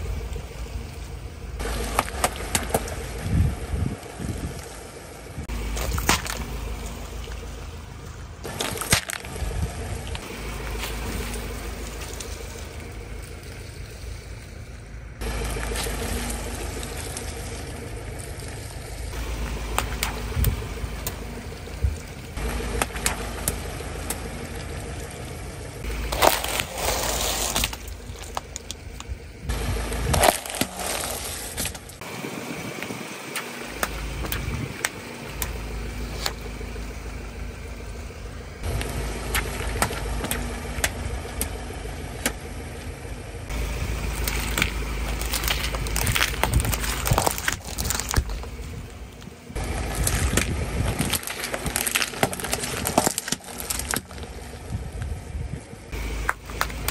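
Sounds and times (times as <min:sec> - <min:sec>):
tyre rolling over asphalt: 0:00.0 - 0:33.1, 0:33.7 - 0:56.9
car engine idling: 0:00.0 - 0:56.9
water beads crushing and popping: 0:08.4 - 0:09.4, 0:25.8 - 0:29.1, 0:29.9 - 0:32.0, 0:43.5 - 0:48.6, 0:49.6 - 0:54.3.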